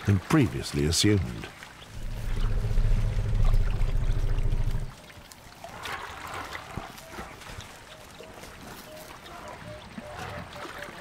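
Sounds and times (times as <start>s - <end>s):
water trickling in mud: 0.0s - 11.0s
elephant low rumble: 1.9s - 5.0s.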